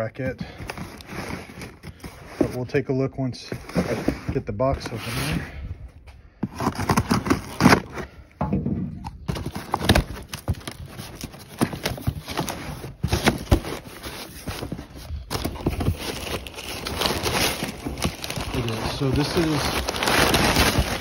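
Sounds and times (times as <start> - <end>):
packing paper rustling: 0.0 - 2.8, 6.4 - 8.1, 9.2 - 21.0
cardboard box cut open: 6.5 - 8.0, 9.3 - 21.0.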